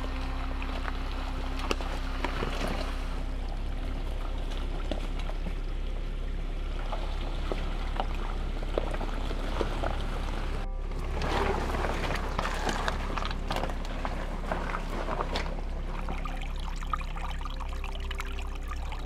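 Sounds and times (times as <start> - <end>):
engine running low: 0.0 - 19.0
stones cracking under tyres: 6.8 - 18.2.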